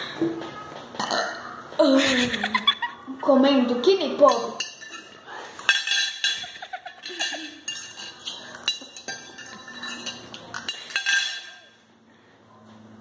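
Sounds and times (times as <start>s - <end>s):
cutlery clinking on plate: 4.3s - 11.8s.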